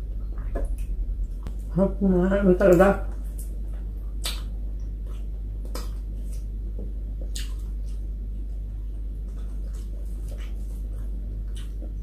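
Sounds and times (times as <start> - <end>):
steady low hum: 0.0 - 12.0
person chewing: 3.1 - 12.0.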